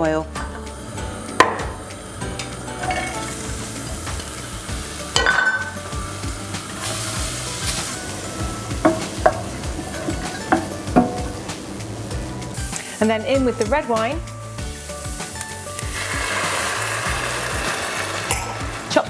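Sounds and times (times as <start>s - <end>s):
vegetables sizzling in oil: 0.8s - 19.0s
vegetables clattering into a pan: 5.1s - 5.8s
spoon knocking against a pan: 8.8s - 9.5s, 10.1s - 11.4s.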